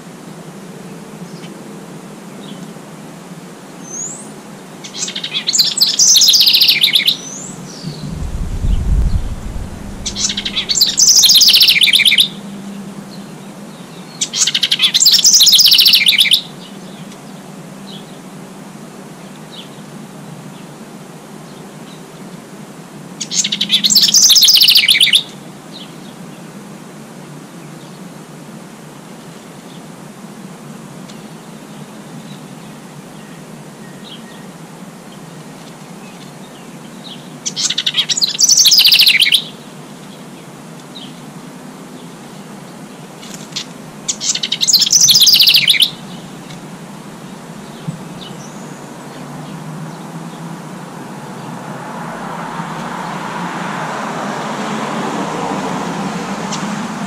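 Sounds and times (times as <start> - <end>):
songbird trilling song: 3.8 - 12.5, 13.1 - 17.2, 23.2 - 26.0, 36.0 - 40.3, 43.5 - 46.6
low rumble: 7.6 - 11.1.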